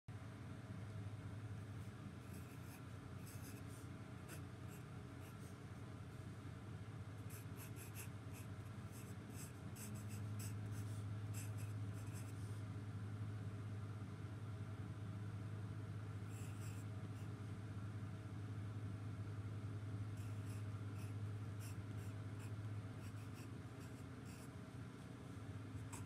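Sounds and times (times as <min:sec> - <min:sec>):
steady low hum: 0:00.1 - 0:26.0
pencil scratching on paper: 0:02.3 - 0:05.6, 0:07.3 - 0:12.4, 0:20.2 - 0:24.5, 0:25.8 - 0:26.0.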